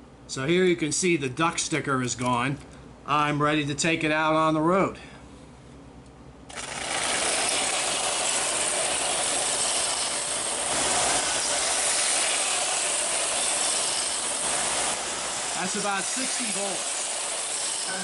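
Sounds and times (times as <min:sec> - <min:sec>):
model locomotive whirring on track: 0:06.5 - 0:18.0.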